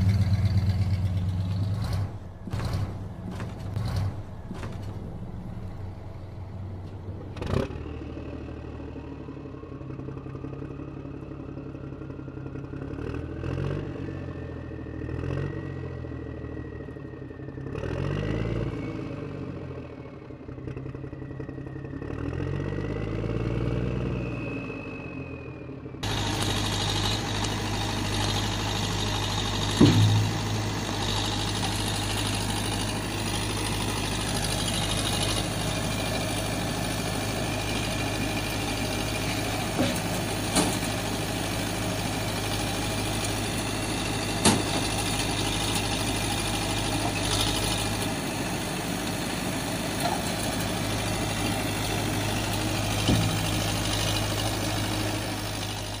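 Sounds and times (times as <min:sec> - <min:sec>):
engine idling: 0:00.0 - 0:07.4, 0:26.0 - 0:56.0.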